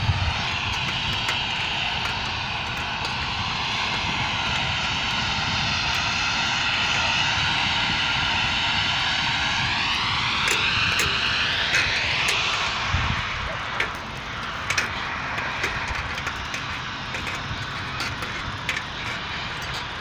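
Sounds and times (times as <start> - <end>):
distant engine drone: 0.0 - 20.0
wind rumble on microphone: 0.0 - 20.0.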